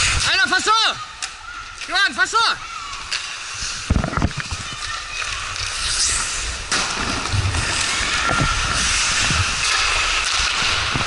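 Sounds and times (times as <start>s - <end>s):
skate blades scraping ice: 2.3s - 11.0s.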